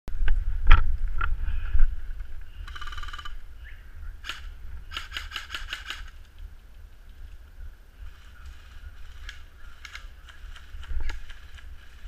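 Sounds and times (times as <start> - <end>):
low rumble of movement: 0.1 - 4.9.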